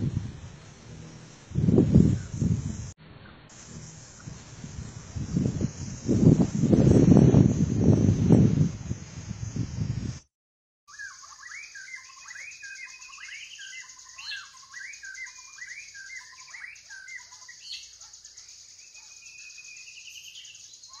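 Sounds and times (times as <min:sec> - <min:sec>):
steady high hiss: 0:00.0 - 0:10.2, 0:11.0 - 0:21.0
birds chirping and whistling: 0:10.9 - 0:21.0.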